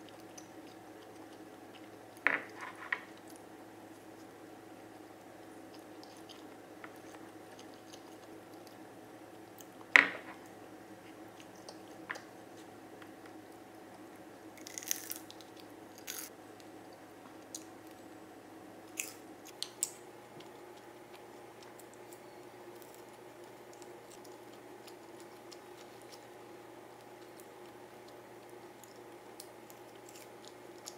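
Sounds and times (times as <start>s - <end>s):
soft chewing: 0.0s - 18.2s, 18.9s - 30.9s
faint room tone hum: 0.0s - 30.9s
crisp crunching bites: 14.6s - 16.3s.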